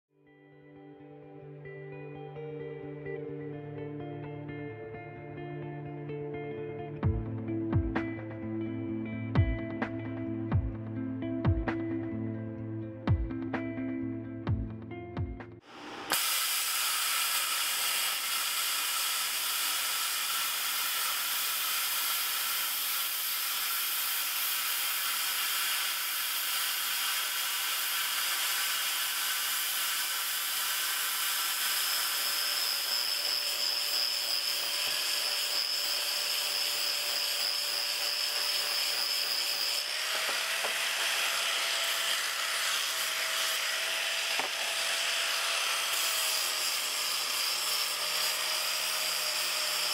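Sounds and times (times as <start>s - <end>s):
plasma cutter hissing: 15.7s - 32.1s.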